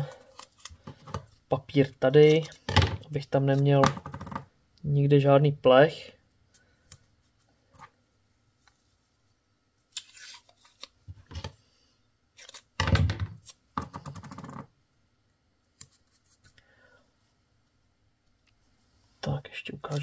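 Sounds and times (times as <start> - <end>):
masking tape rustling and ripping: 9.9 - 11.0.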